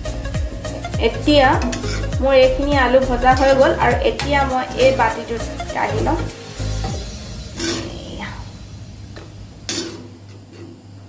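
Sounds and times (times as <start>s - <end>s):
spoon scraping pan: 1.6s - 2.2s, 5.9s - 8.1s, 9.2s - 10.8s.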